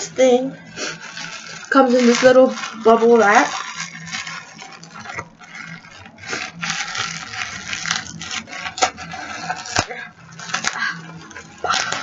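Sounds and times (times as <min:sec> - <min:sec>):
bubble wrap rustling and crinkling: 0:00.0 - 0:12.0
bubble wrap snapping: 0:00.8 - 0:12.0.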